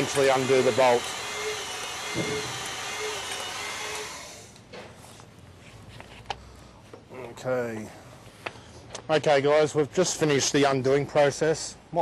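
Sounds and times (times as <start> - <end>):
hydraulic pump running: 0.0 - 4.5.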